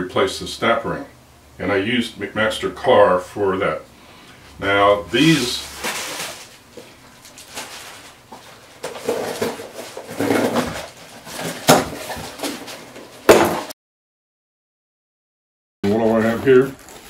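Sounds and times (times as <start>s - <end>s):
cardboard cracking: 5.2s - 8.2s
cardboard scraping and rustling: 5.2s - 13.7s, 15.9s - 17.0s.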